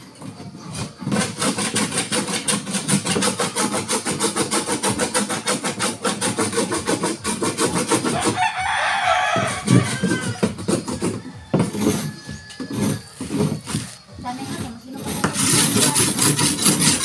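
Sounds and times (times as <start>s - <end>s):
hand rubbing on wood: 0.6s - 17.0s.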